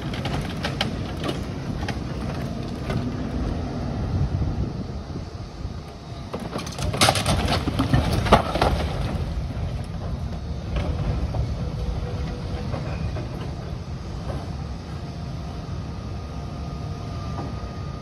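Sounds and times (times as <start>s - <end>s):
excavator diesel engine rumble: 0.0s - 18.0s
debris cracking and crashing: 6.4s - 9.9s.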